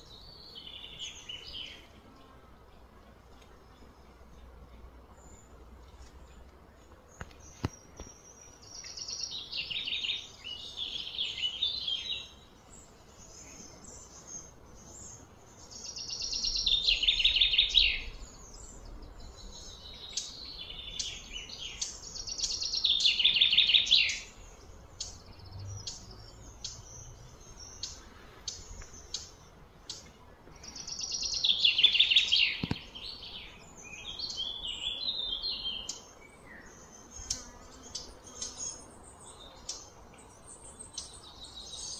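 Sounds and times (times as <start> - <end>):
bird chirps: 7.2 - 41.9
songbird trilling: 15.7 - 18.6.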